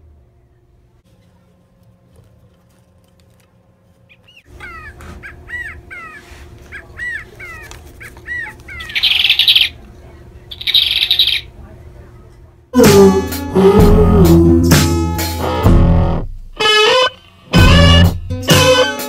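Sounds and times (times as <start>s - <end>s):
harsh squawks: 4.1s - 9.8s
toy bird chirps: 7.0s - 9.7s, 10.5s - 11.5s.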